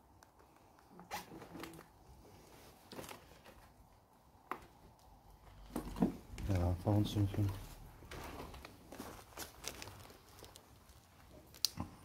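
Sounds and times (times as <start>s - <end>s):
faint knocks and rustles: 4.4s - 10.6s.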